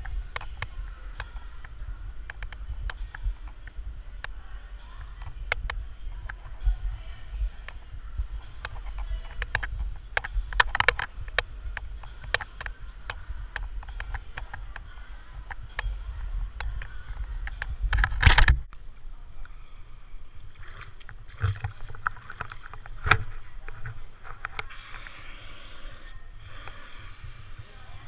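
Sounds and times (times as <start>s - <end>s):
low rumble: 0.0s - 19.3s
water sloshing: 20.4s - 24.8s.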